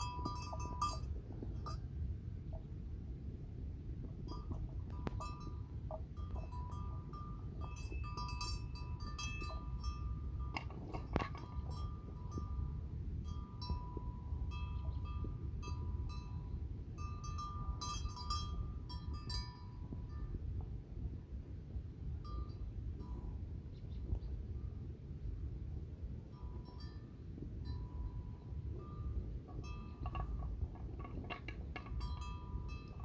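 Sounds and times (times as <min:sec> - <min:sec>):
small bells tinkling: 0:00.0 - 0:02.0, 0:04.2 - 0:20.6, 0:22.2 - 0:23.4, 0:26.2 - 0:33.0
steady low rumble: 0:00.0 - 0:33.0.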